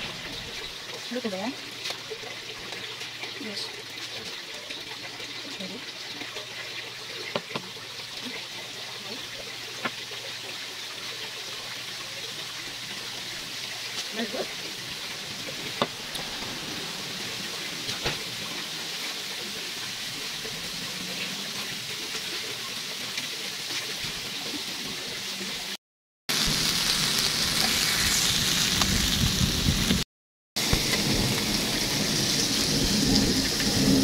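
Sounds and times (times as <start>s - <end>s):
meat sizzling on a grill: 6.8s - 30.0s
low rumble: 14.9s - 21.2s.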